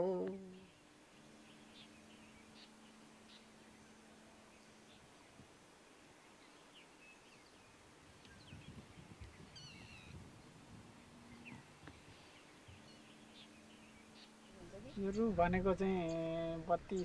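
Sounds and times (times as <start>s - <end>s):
wavering bird call: 8.2s - 15.2s
short bird chirps: 8.3s - 10.2s.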